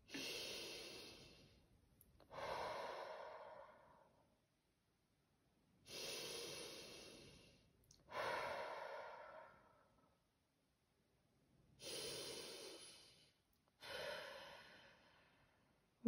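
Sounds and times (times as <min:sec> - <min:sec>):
woman breathing deeply: 0:00.0 - 0:01.6, 0:02.2 - 0:04.2, 0:05.8 - 0:10.1, 0:11.8 - 0:15.7.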